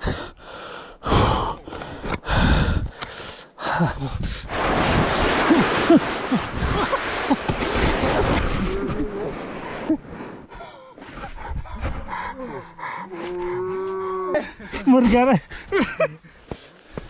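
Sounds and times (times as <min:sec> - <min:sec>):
heavy gasping breaths: 0:00.0 - 0:04.5, 0:10.5 - 0:14.8
body sliding down snow: 0:04.5 - 0:12.0.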